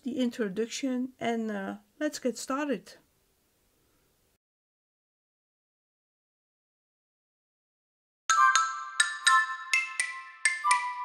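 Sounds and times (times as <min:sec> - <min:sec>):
bell-like mallet jingle: 0:08.3 - 0:11.0.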